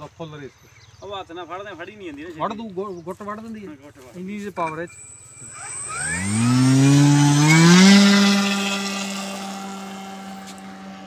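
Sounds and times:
electric motor propeller whine: 4.9 - 11.0.

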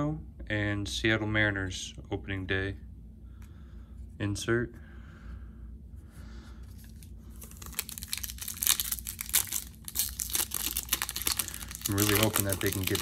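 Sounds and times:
foil wrapper crinkling and tearing: 6.7 - 13.0.

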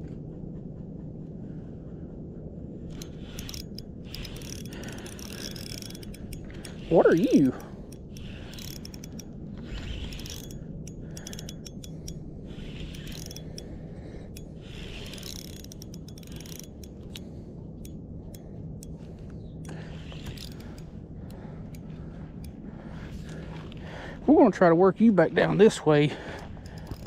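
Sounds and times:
fishing reel gears whirring and clicking: 2.9 - 23.7, 26.2 - 27.0.

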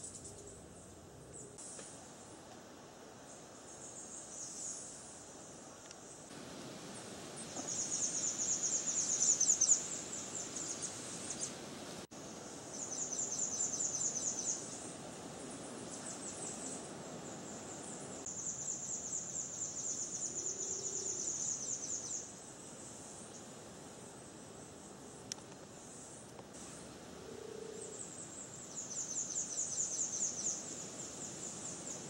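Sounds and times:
outdoor background hiss: 0.0 - 32.0
insects trilling: 3.1 - 32.0.

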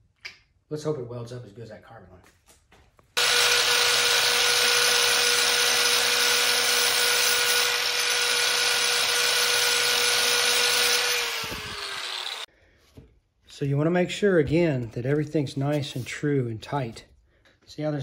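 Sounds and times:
angle grinder grinding steel: 3.2 - 12.5.

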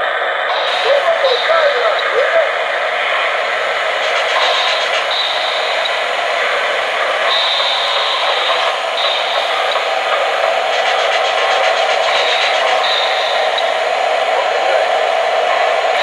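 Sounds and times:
model train rattling on track: 0.5 - 16.0
high thin tone: 4.0 - 6.2, 7.2 - 9.9.

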